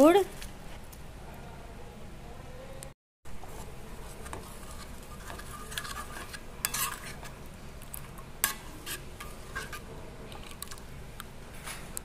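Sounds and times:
spoon scraping and clinking pan: 4.1 - 7.4, 8.4 - 10.8.

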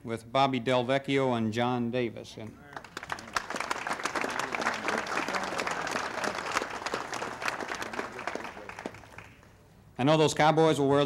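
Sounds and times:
audience applauding: 2.7 - 9.5.

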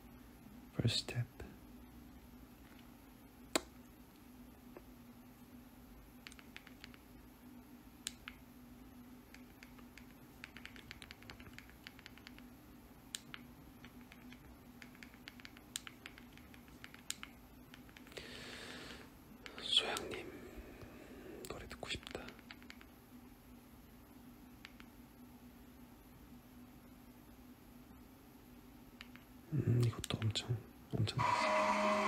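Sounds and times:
low steady hum: 0.0 - 32.0
faint clicks and taps: 6.2 - 7.1, 8.0 - 8.4, 9.3 - 12.5, 13.1 - 18.2, 21.4 - 23.0, 24.6 - 25.0, 29.0 - 30.4.

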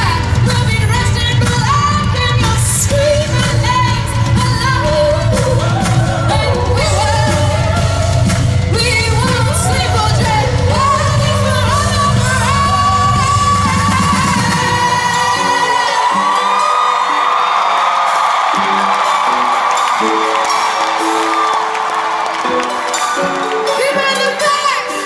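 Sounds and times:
woman singing pop-rock: 0.0 - 16.8
band with drums and guitars: 0.0 - 25.0.

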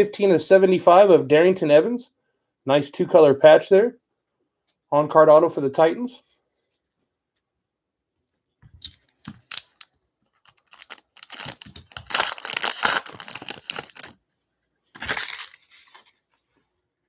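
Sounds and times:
foil wrapper tearing and crinkling: 10.4 - 14.2, 14.9 - 16.2.

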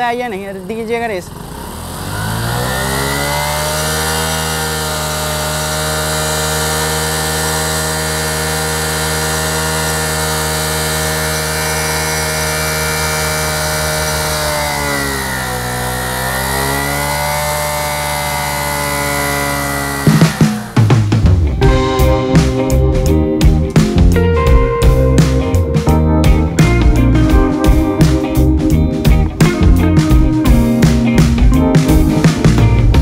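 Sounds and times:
motorcycle engine at high revs: 0.0 - 22.8.

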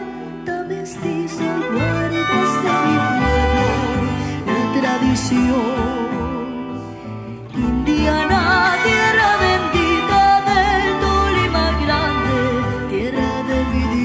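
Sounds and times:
acoustic folk ensemble playing: 0.0 - 14.0
girl singing: 0.5 - 3.9, 7.7 - 14.0.

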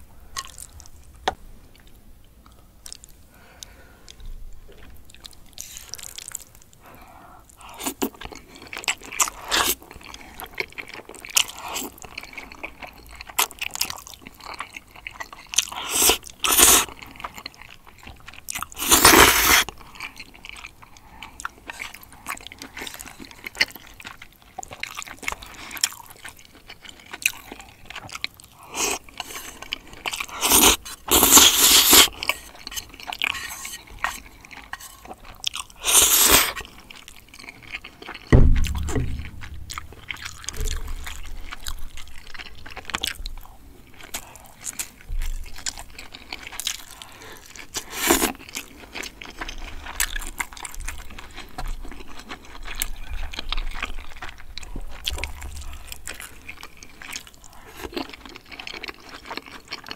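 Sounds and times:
person chewing: 0.3 - 59.9
noodle slurps: 18.8 - 19.7, 30.4 - 34.2, 35.8 - 36.6
low thud: 38.3 - 41.5.

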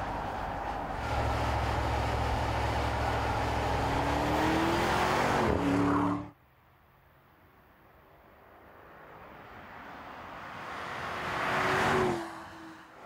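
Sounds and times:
car engine accelerating: 0.0 - 6.3.

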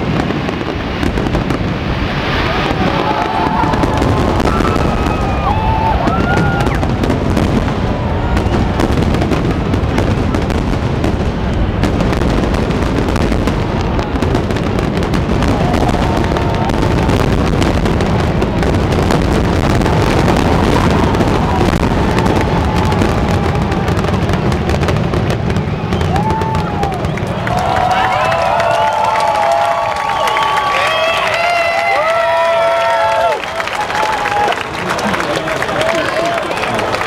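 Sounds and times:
fireworks bursting and crackling: 0.0 - 37.0.

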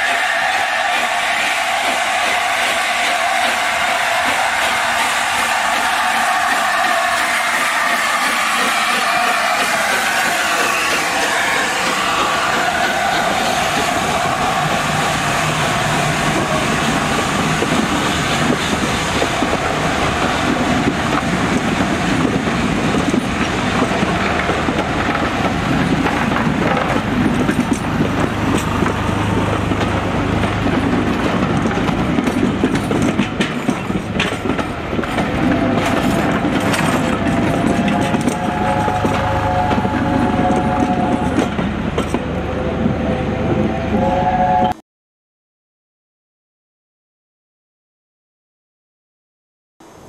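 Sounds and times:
train wheels rumbling and rattling: 0.0 - 43.8
wheels clicking over rail joints: 20.5 - 42.3.

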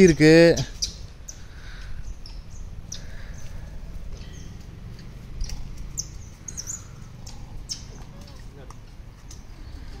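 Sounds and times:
steady low rumble: 0.5 - 10.0
high animal chirps and squeaks: 5.4 - 8.4.

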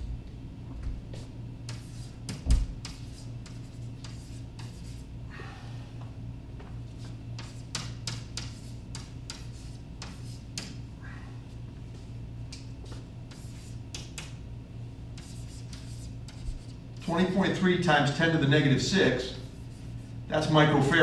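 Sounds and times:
chalk writing on blackboard: 1.2 - 5.1, 6.9 - 10.8, 12.8 - 14.4, 15.1 - 16.8, 19.3 - 20.3
low hum: 10.8 - 12.7.

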